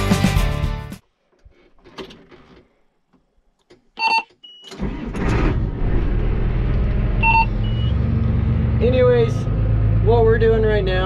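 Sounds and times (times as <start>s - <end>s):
diesel engine starting and idling: 4.7s - 11.0s
electronic warning beep: 7.2s - 8.0s.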